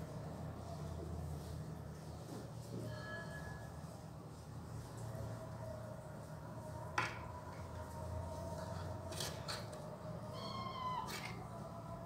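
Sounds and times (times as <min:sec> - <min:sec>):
cat meowing: 0:10.3 - 0:11.4.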